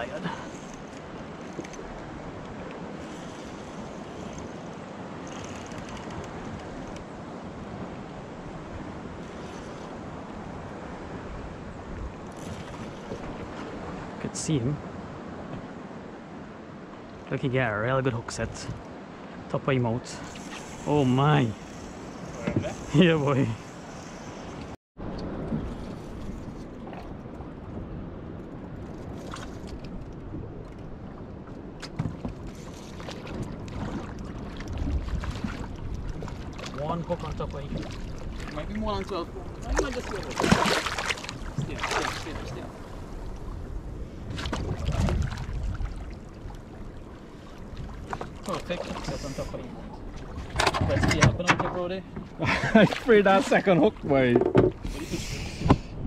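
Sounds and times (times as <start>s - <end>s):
sea water rushing: 0.0s - 56.0s
wind buffeting microphone: 20.3s - 53.0s
sharp knocks or splashes: 39.6s - 42.3s.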